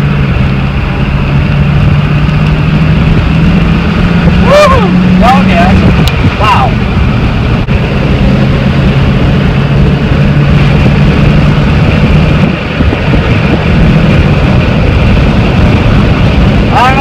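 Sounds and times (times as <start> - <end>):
road and wind noise: 0.0 - 17.0
truck engine drone: 0.0 - 17.0.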